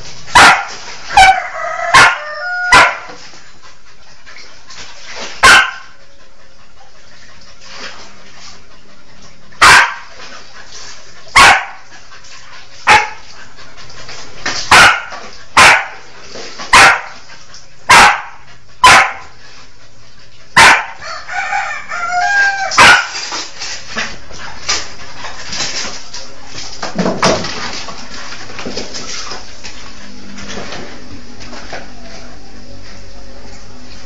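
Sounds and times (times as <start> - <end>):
dog barking: 0.3 - 3.1, 5.4 - 5.9, 9.6 - 10.1, 11.3 - 11.8, 12.8 - 13.2, 14.7 - 16.0, 16.7 - 17.2, 17.9 - 19.3, 20.6 - 21.5, 22.6 - 23.2
high-pitched dog calls: 0.4 - 3.1.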